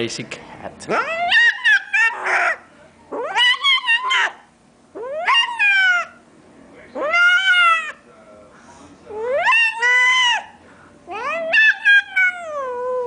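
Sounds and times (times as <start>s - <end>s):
cat meowing: 11.1s - 13.0s.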